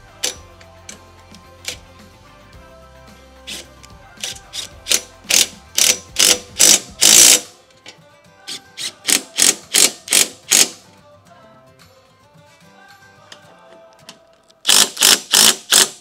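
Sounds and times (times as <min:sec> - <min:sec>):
impact wrench bursts: 0:03.5 - 0:07.5, 0:08.8 - 0:10.8, 0:14.7 - 0:16.0.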